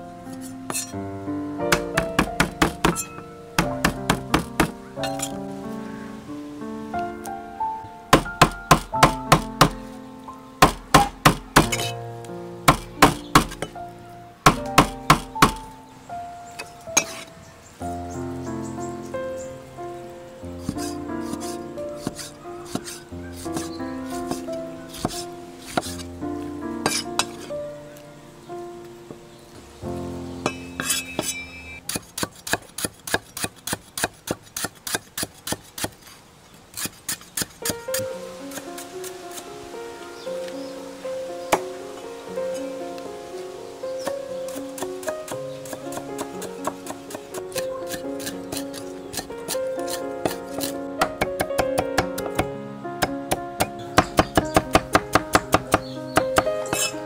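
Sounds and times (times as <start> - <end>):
background music: 0.0 - 32.0, 37.6 - 57.0
knife chopping on wooden board: 1.7 - 4.7, 8.2 - 9.8, 10.6 - 12.0, 12.7 - 13.7, 14.5 - 15.7, 20.6 - 26.0, 30.5 - 36.0, 44.5 - 55.8, 56.4 - 56.9.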